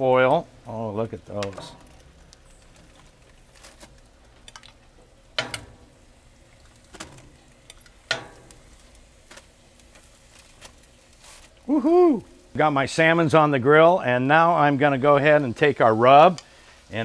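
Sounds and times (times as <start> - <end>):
fish sizzling on foil: 0.0 - 17.0
metal utensils clicking on grill: 1.2 - 6.0, 6.7 - 10.9.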